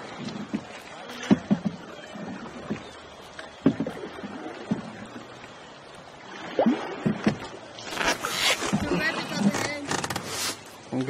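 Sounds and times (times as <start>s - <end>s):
paddle knocking against canoe: 0.0s - 5.5s, 7.0s - 7.6s
water swishing under paddle: 0.0s - 11.0s.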